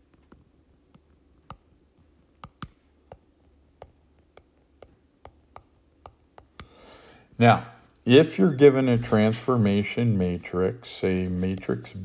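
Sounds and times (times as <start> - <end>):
stylus clicking on tablet screen: 0.0 - 6.8.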